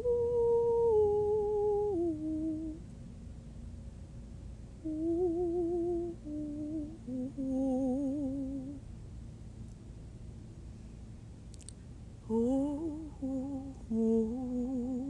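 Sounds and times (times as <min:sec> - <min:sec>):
woman humming: 0:00.0 - 0:02.8, 0:04.8 - 0:08.8, 0:12.3 - 0:15.0.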